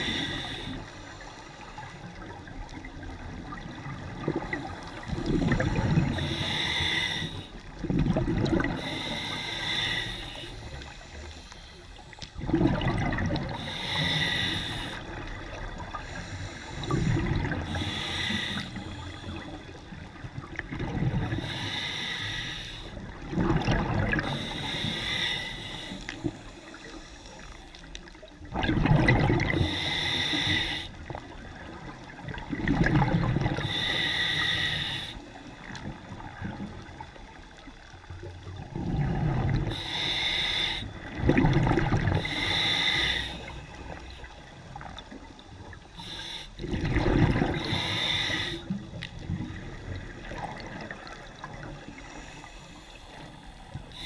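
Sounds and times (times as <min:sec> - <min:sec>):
regulator hissing on inhale: 0:00.0 - 0:02.3, 0:04.6 - 0:07.7, 0:08.7 - 0:12.3, 0:13.5 - 0:20.0, 0:21.3 - 0:23.1, 0:24.2 - 0:27.9, 0:29.5 - 0:31.2, 0:33.5 - 0:35.8, 0:39.5 - 0:41.1, 0:42.1 - 0:46.8, 0:47.5 - 0:49.2, 0:51.3 - 0:54.0
bubbling exhaled air: 0:03.5 - 0:11.3, 0:12.4 - 0:19.7, 0:20.4 - 0:22.5, 0:23.1 - 0:26.4, 0:28.5 - 0:30.8, 0:31.7 - 0:35.1, 0:38.6 - 0:44.1, 0:45.9 - 0:52.4.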